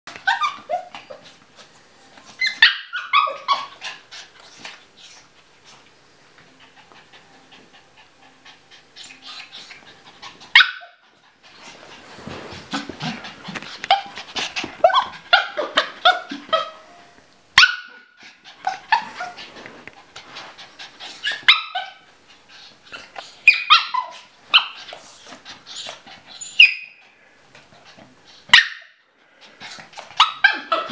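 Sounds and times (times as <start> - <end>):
small dog yapping: 0.1 - 1.3, 2.4 - 3.9, 10.5 - 11.0, 14.8 - 16.8, 21.2 - 22.0, 23.4 - 25.0, 28.5 - 28.9.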